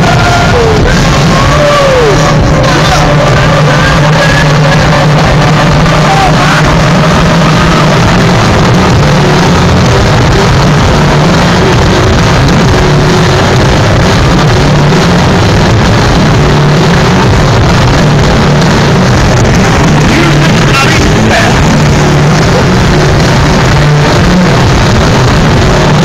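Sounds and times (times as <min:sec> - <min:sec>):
distorted live band music: 0:00.0 - 0:26.0.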